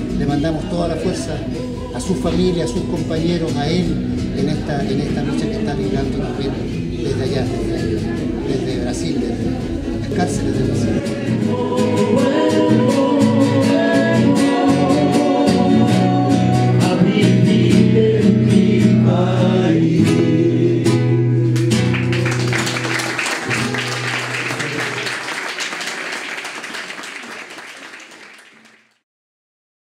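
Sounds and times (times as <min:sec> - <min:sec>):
acoustic guitar song with singing: 0:00.0 - 0:25.1
audience applause: 0:21.8 - 0:29.0.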